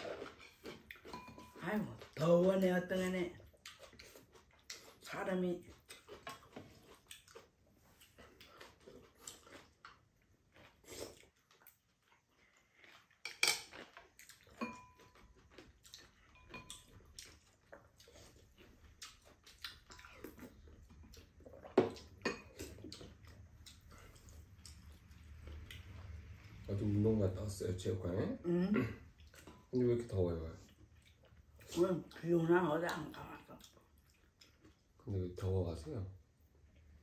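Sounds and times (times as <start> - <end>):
utensils clinking on bowls: 0.2 - 1.7, 14.6 - 15.2, 16.3 - 16.9.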